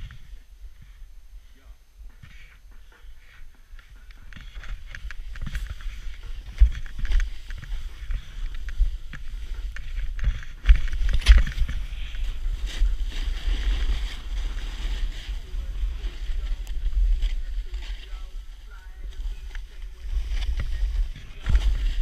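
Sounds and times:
low wind rumble on microphone: 0.0 - 22.0
snowboard sliding through snow: 4.6 - 22.0.

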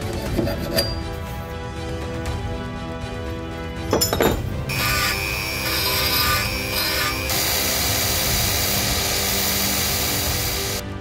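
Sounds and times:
belt grinder grinding metal: 4.7 - 10.8
power drill spinning in metal: 4.7 - 10.8.

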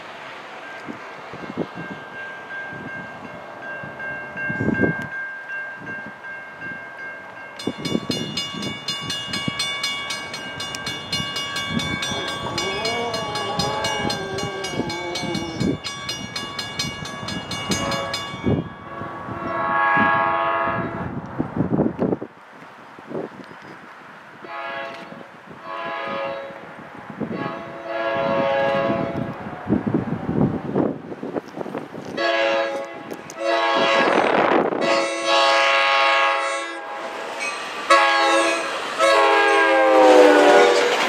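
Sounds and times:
crossing warning bells ringing: 0.0 - 19.8, 32.1 - 41.0
locomotive horn: 12.1 - 15.8, 17.8 - 18.2, 18.8 - 21.1, 24.4 - 26.7, 27.3 - 29.4, 32.2 - 37.2, 37.9 - 41.0.

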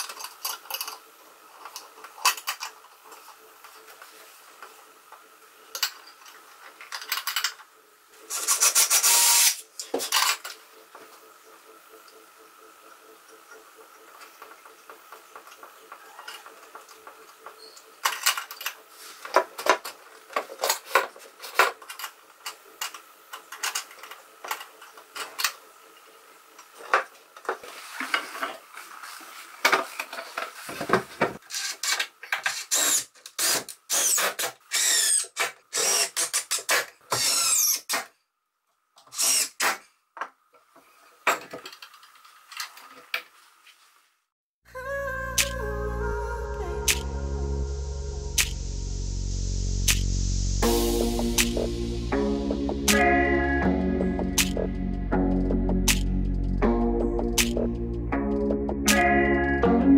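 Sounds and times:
cordless drill whirring: 32.6 - 37.9, 39.1 - 39.8.

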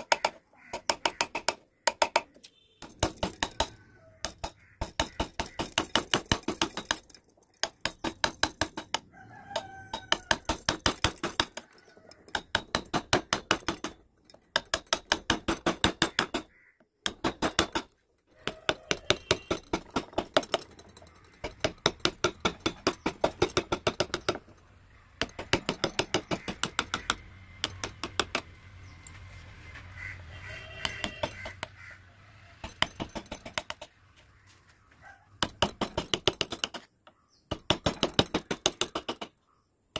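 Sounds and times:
chisel tapping wood: 0.0 - 7.0, 25.2 - 28.5, 30.8 - 31.8.

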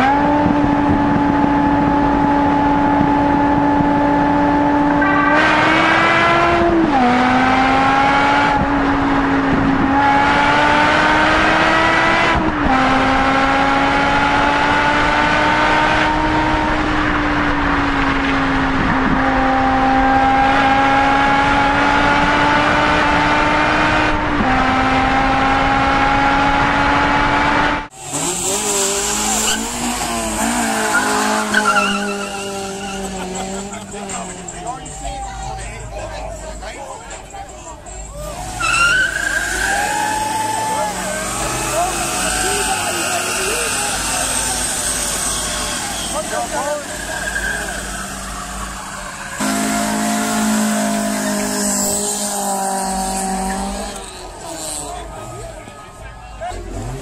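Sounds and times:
car engine accelerating hard: 0.0 - 57.0
car revving: 0.0 - 57.0
tyre squeal: 28.0 - 34.6, 38.1 - 54.9.

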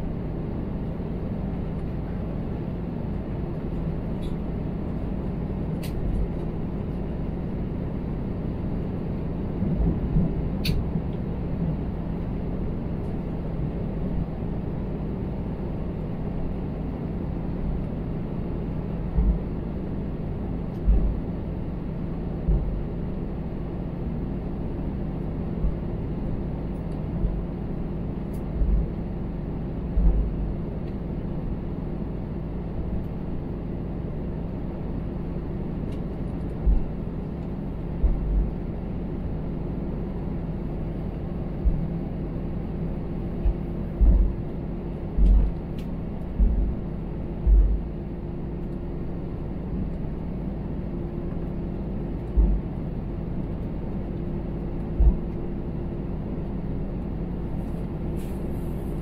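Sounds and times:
jet cabin hum: 0.0 - 59.0
low thumps: 43.4 - 44.4, 46.4 - 46.8, 47.4 - 47.9.

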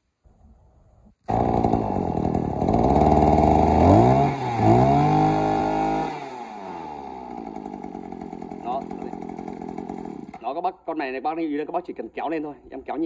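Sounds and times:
brush cutter engine running: 1.2 - 10.5.

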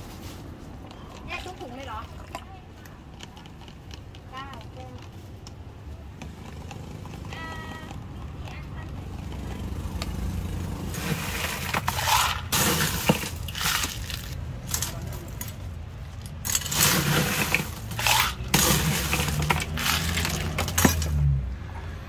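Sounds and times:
ice clattering into cups: 0.8 - 5.0, 10.8 - 21.3.

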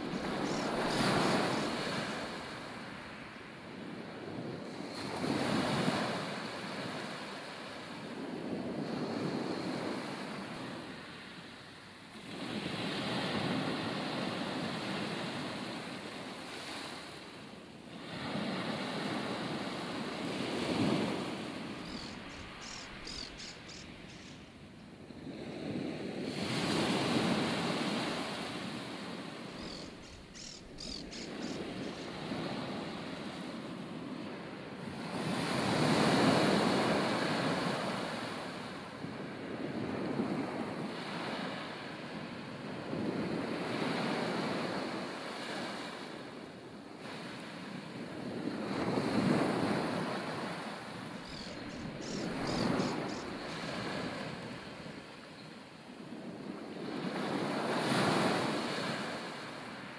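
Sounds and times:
wind blowing: 0.0 - 3.1, 20.2 - 33.7, 49.2 - 56.3
ocean surf washing ashore: 0.0 - 59.9
faint high chirps: 21.8 - 24.5, 29.6 - 32.1, 51.2 - 53.6.

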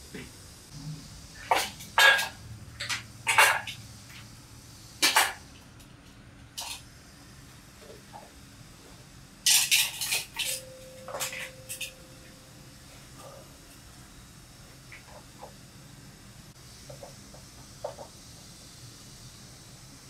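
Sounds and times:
metal parts and bowl clinking: 1.4 - 3.8, 9.5 - 12.3.

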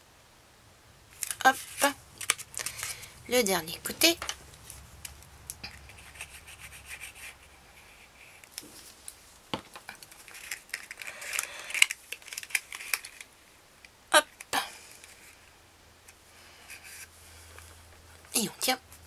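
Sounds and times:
paper rustling and crinkling: 1.2 - 3.2, 4.2 - 13.3.

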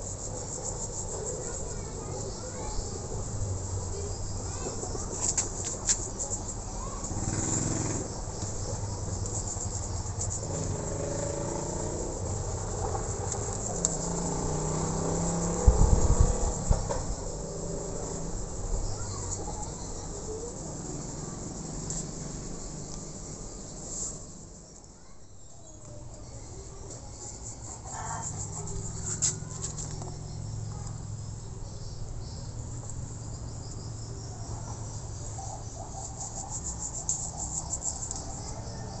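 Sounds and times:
insects chirring: 0.0 - 39.0
vehicle engine passing by: 7.0 - 8.4, 10.1 - 24.4.

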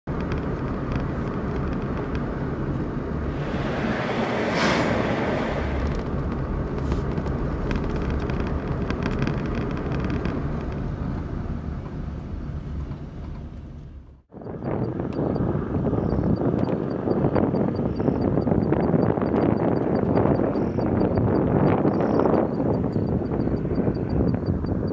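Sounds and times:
car engine and road rumble: 0.0 - 24.9
rush of air: 3.1 - 7.1.

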